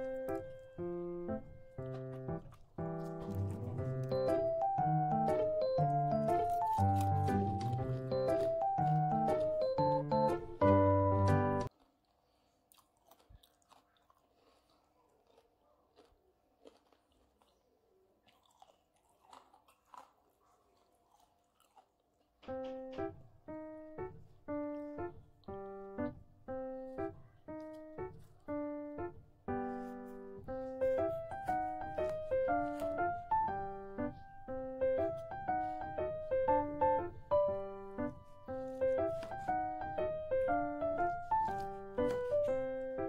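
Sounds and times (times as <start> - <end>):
crunchy chewing: 0.0 - 10.4, 11.6 - 23.1, 24.1 - 26.2, 26.8 - 28.8, 29.5 - 43.0
piano music: 0.0 - 11.7, 22.4 - 43.0.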